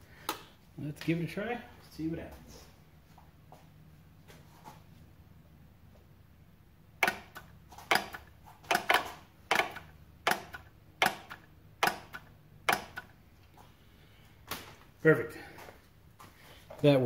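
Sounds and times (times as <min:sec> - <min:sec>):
solenoid clicking: 0:07.0 - 0:13.1.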